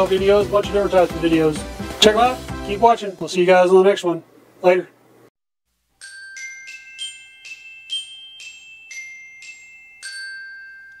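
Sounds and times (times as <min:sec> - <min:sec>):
glockenspiel jingle: 0:05.9 - 0:11.0.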